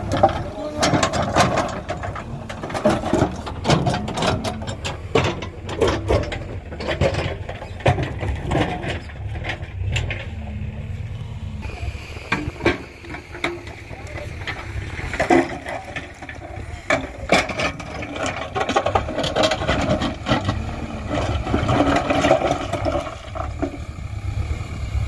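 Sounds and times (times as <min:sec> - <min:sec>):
rocks knocking and clattering: 0:00.0 - 0:10.3, 0:12.2 - 0:24.0
diesel engine running: 0:00.0 - 0:25.0.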